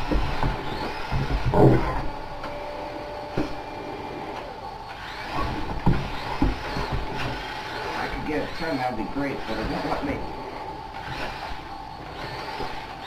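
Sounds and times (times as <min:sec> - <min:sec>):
toy tank motors whirring: 0:00.0 - 0:01.8, 0:04.3 - 0:10.3, 0:10.9 - 0:13.0
knocks: 0:05.5 - 0:07.4.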